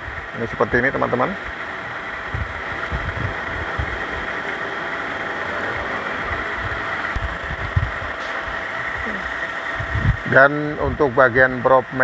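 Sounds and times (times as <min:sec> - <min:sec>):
steady whooshing noise: 0:01.4 - 0:11.0
soft low thumps: 0:02.2 - 0:04.3, 0:06.6 - 0:08.2, 0:09.7 - 0:10.2.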